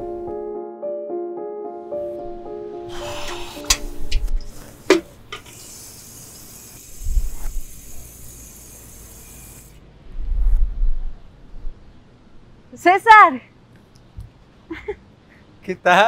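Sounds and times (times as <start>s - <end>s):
steady high hiss: 2.9s - 9.9s
wind on microphone: 6.9s - 7.8s, 10.1s - 11.8s.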